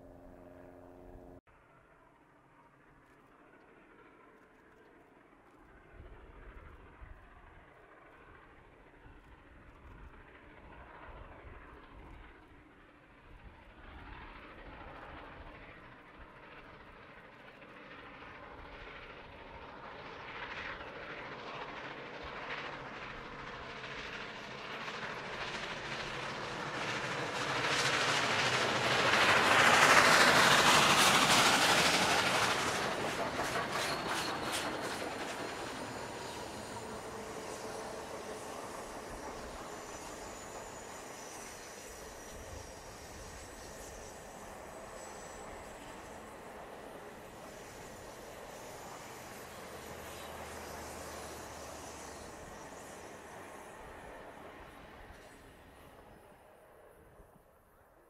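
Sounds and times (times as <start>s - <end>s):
train rumble: 13.9s - 57.4s
wheel clatter on rails: 25.2s - 40.7s.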